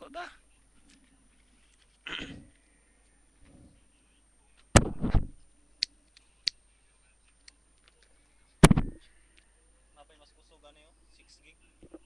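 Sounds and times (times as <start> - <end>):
loud thumps: 4.7 - 5.4, 8.6 - 9.0.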